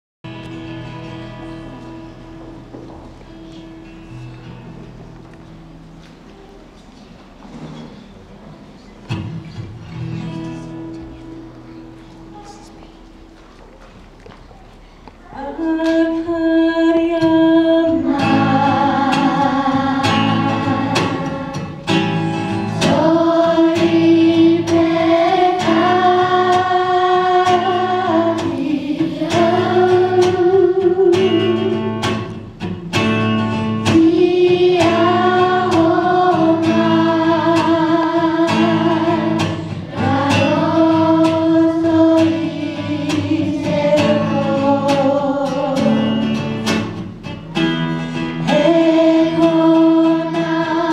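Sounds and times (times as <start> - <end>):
children's choir singing: 15.2 - 32.5, 33.2 - 50.9.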